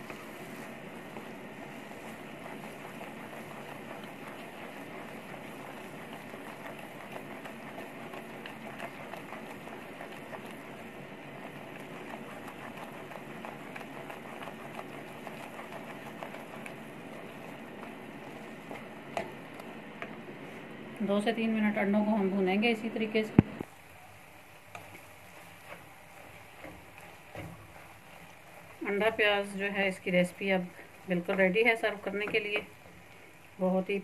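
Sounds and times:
spatula scraping pan: 0.0s - 20.2s
food sizzling in frying pan: 0.0s - 20.6s, 23.6s - 34.0s.

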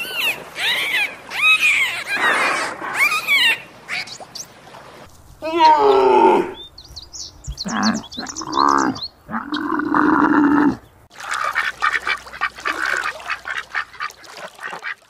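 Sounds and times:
small birds chirping: 3.0s - 4.6s, 6.5s - 10.0s
ducks quacking: 7.6s - 15.0s.

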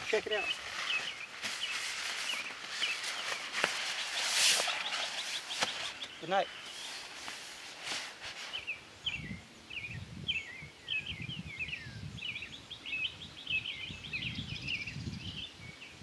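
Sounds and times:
songbird chirping and warbling: 0.0s - 16.0s
wind buffeting microphone: 9.0s - 15.8s.

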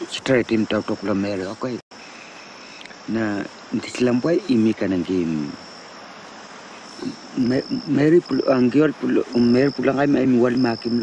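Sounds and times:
man talking: 0.0s - 1.8s, 3.0s - 5.6s, 6.8s - 11.0s
insects chirping: 0.0s - 11.0s.

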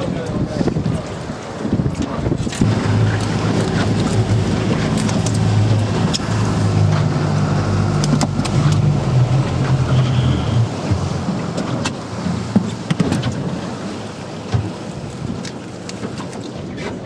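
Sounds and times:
outboard boat motor running: 0.0s - 17.0s.

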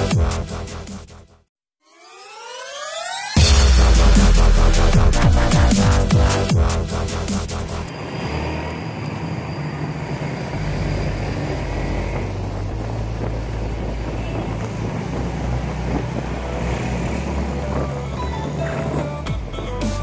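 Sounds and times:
wind noise on microphone: 10.1s - 20.0s.

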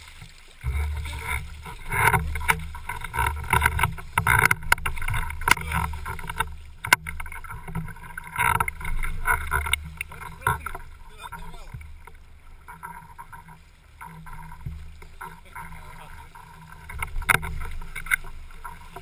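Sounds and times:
water splashing and sloshing: 0.0s - 19.0s
wind rumble on microphone: 0.6s - 12.5s
sharp clicks and knocks: 0.6s - 13.3s, 16.9s - 19.0s.

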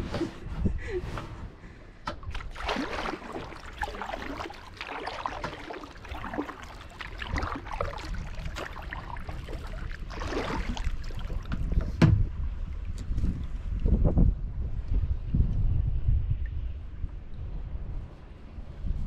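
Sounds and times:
wind rumble on microphone: 0.0s - 2.6s, 3.2s - 19.0s
paddle dipping in water: 2.2s - 13.8s
water trickling and gurgling: 2.3s - 12.0s.

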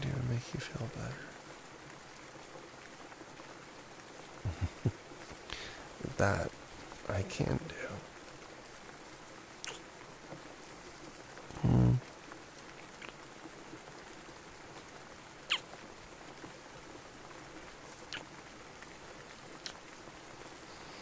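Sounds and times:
rain: 0.0s - 21.0s
wet lip smacks: 13.0s - 13.2s.

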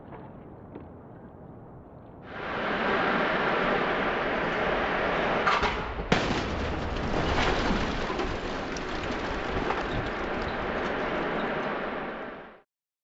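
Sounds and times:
steady rushing noise: 2.3s - 6.1s, 9.3s - 12.6s
car crashing into barrier: 5.5s - 10.6s.

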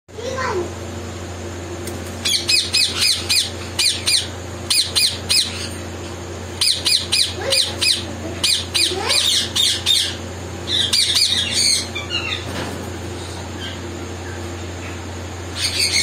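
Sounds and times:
parrots screeching: 2.2s - 5.8s, 6.6s - 12.5s, 15.6s - 16.0s.

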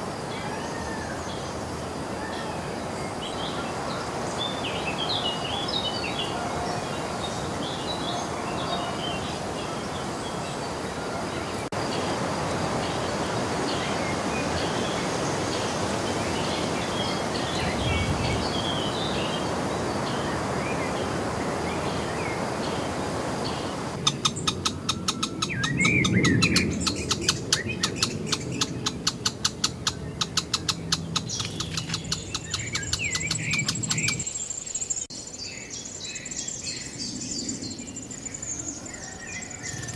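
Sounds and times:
steady background hiss: 0.0s - 39.9s
birds chirping and calling: 23.4s - 39.9s.

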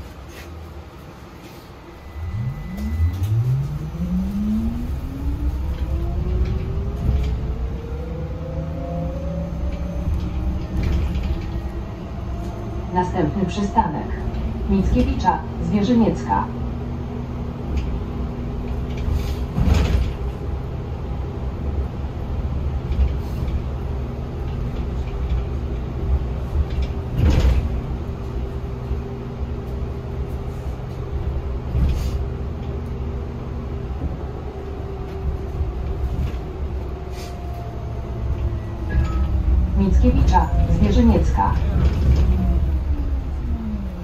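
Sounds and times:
bus cabin low rumble: 0.0s - 44.0s
thumps and rattles: 18.7s - 20.4s, 26.5s - 27.9s.

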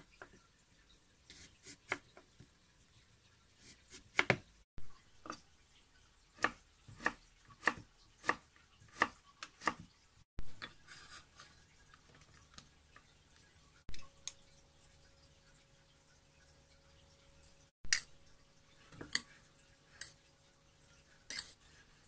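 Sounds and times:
knife slicing radish on board: 3.9s - 4.4s, 6.4s - 9.9s.

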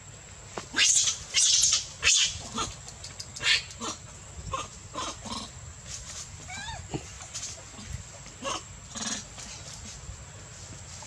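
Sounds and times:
monkeys screaming: 0.8s - 2.8s.

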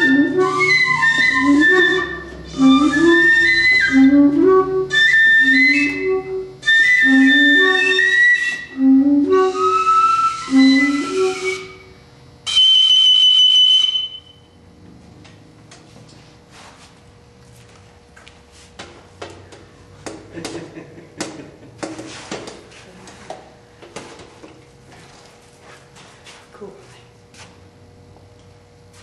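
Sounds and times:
bass saxophone low figure: 0.0s - 5.1s
flute playing lines: 0.0s - 14.4s.

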